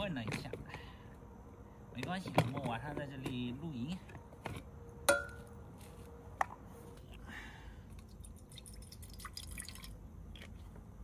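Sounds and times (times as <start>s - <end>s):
water dripping: 8.0s - 10.0s.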